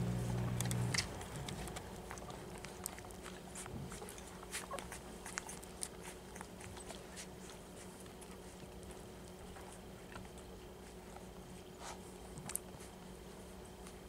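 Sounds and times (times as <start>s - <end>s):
low steady hum: 0.0s - 14.0s
puppies suckling: 0.0s - 14.0s.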